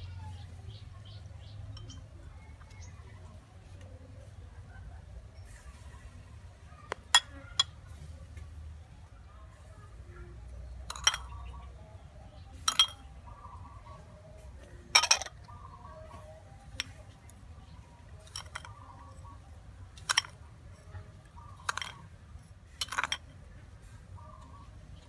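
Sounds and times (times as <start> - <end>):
metal spoon clinking on glass bowl: 1.8 - 2.0, 10.9 - 11.4, 12.7 - 13.1, 15.0 - 15.4, 18.2 - 19.2, 20.0 - 20.9, 21.6 - 23.3.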